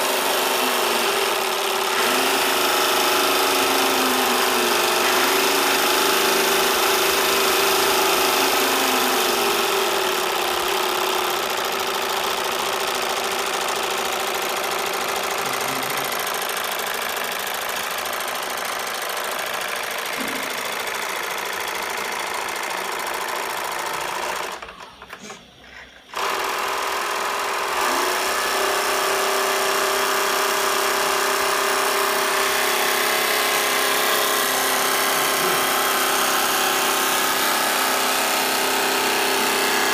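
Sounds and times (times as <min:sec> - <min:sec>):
model steam engine chattering: 0:01.1 - 0:25.4.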